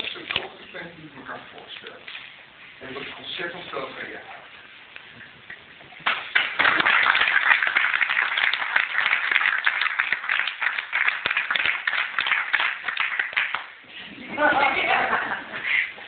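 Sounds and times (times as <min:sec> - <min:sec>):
people applauding: 0:06.0 - 0:13.8.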